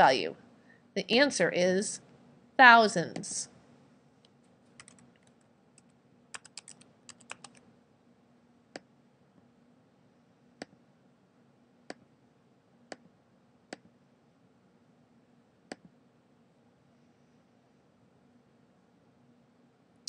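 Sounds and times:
computer keyboard typing: 4.8 - 7.6.

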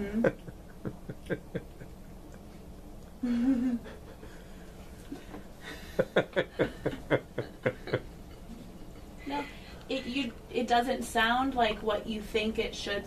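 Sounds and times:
woman humming: 0.0 - 0.4, 3.2 - 3.9
woman laughing: 0.0 - 1.9, 3.2 - 4.2, 5.1 - 9.4.

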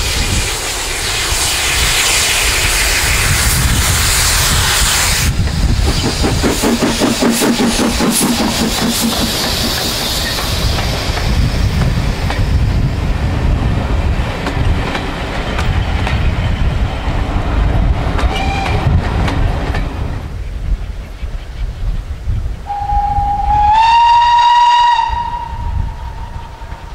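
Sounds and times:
steam locomotive exhaust beat: 0.0 - 20.4, 22.6 - 26.9
train wheels clacking over rail joints: 5.3 - 12.9, 14.1 - 16.9, 18.1 - 20.2.

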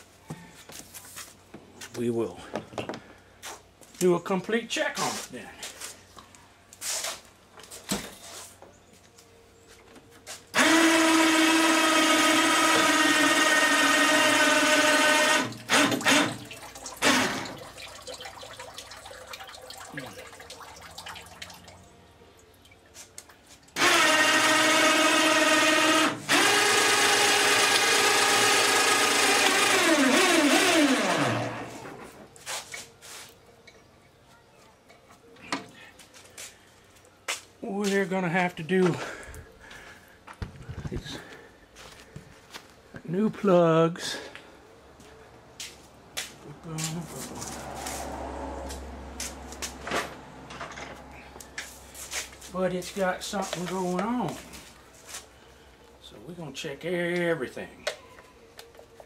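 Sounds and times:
electric hoist motor whining: 10.5 - 17.5, 23.8 - 32.0.

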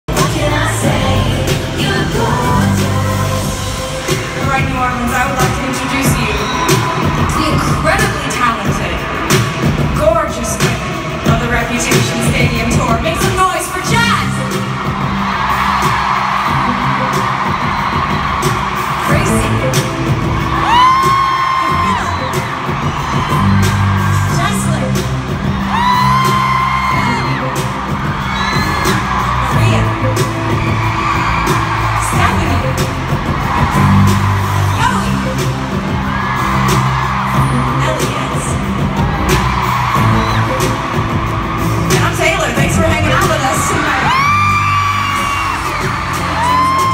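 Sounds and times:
pop music over loudspeakers: 0.0 - 46.9
large crowd cheering: 0.1 - 46.9.

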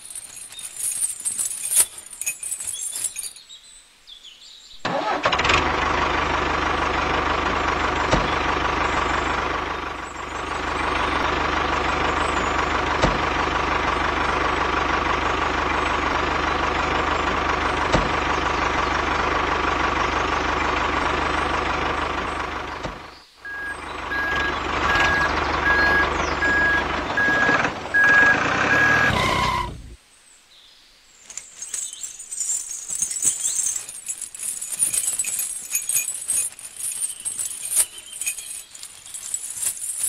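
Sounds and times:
metal chain clinking: 0.0 - 3.6, 31.3 - 40.0
tractor engine idling: 4.9 - 30.0.

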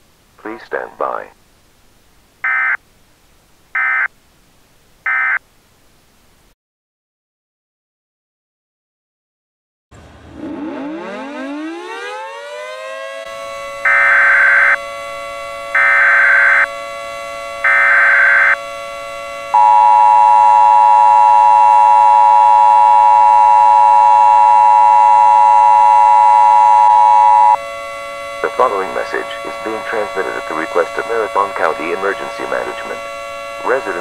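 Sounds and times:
siren wailing: 2.4 - 2.8, 3.8 - 4.1, 10.2 - 34.0
two-tone attention signal: 19.6 - 27.6.

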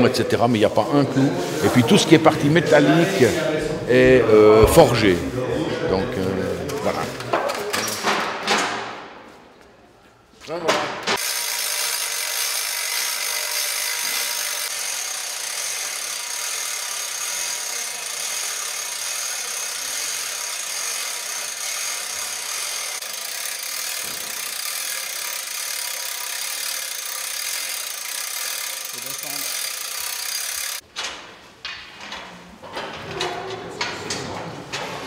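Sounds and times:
hand winch grinding: 11.2 - 30.8
wheels rolling on metal ramp: 11.2 - 31.3.

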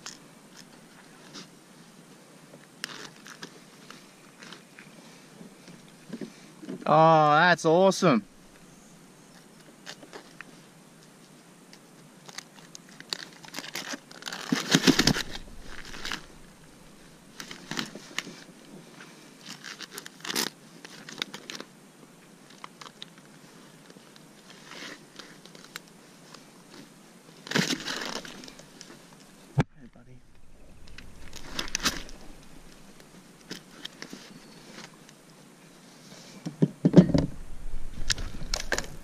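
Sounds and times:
net mesh rustling and scraping: 13.1 - 18.5, 27.4 - 29.2, 30.2 - 35.0, 37.3 - 39.0
low thump: 37.0 - 39.0.

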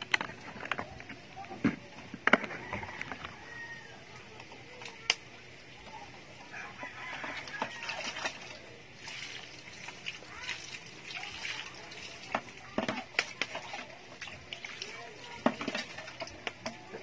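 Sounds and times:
clicks and knocks of handling: 0.0 - 3.4.

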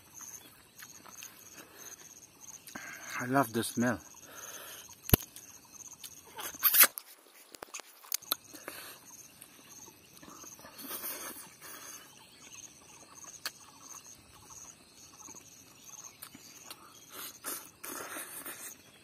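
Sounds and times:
sharp clicks: 5.0 - 7.0
man chewing wetly: 15.2 - 19.0.

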